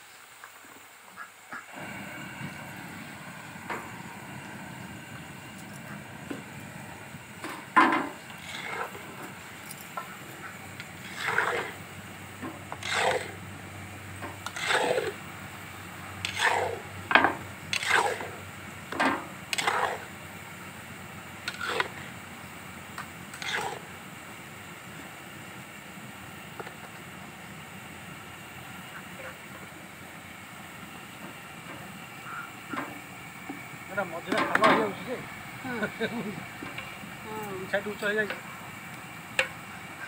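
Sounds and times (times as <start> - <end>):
hiss of frying oil: 0.0 - 40.0
metal spatula scraping pan: 7.6 - 9.0, 11.0 - 11.8, 12.5 - 13.4, 14.4 - 15.2, 16.2 - 18.4, 19.1 - 20.1, 21.5 - 22.0, 23.4 - 23.9.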